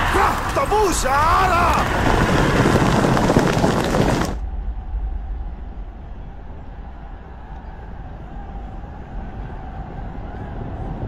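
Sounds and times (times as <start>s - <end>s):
crowd roaring war cries: 0.0s - 4.3s
low rumble: 1.2s - 11.0s.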